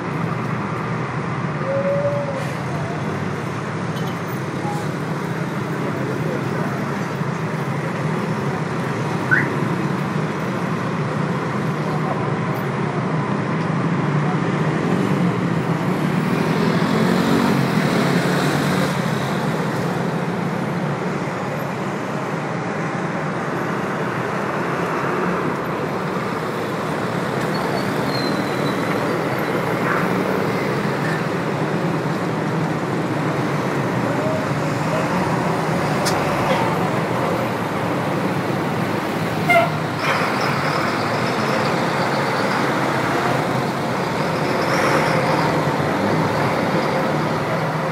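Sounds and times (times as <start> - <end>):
city road traffic: 0.0 - 47.9
car horn toot: 39.5 - 39.8.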